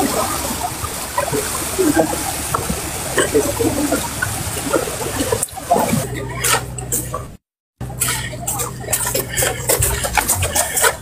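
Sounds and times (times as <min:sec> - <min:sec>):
floodwater rushing: 0:00.0 - 0:07.3, 0:07.9 - 0:11.0
faint voices: 0:00.0 - 0:11.0.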